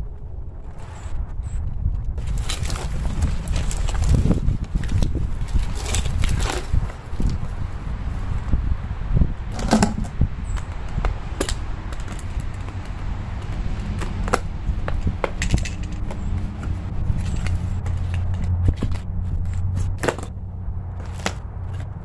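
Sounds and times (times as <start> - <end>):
steady low rumble: 0.0 - 22.0
tool scraping through soil: 15.0 - 20.3.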